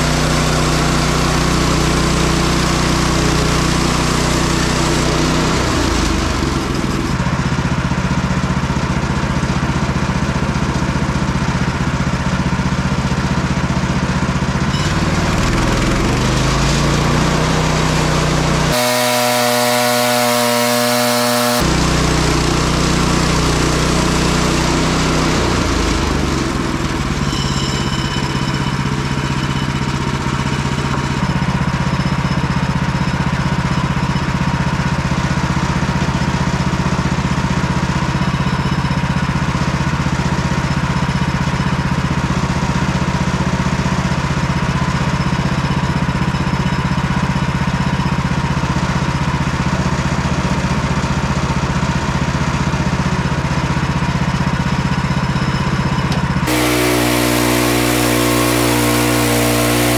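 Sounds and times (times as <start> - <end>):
sawmill engine running: 0.0 - 38.3, 56.1 - 59.9
saw cutting into log: 16.4 - 22.4, 56.5 - 59.9.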